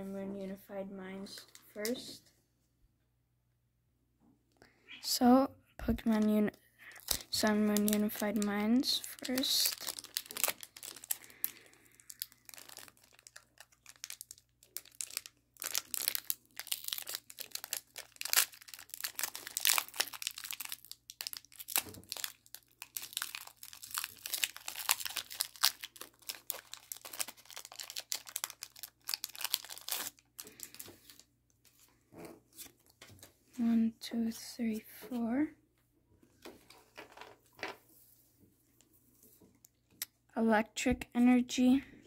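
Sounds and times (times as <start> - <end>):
foil wrapper crinkling and tearing: 6.9 - 31.8.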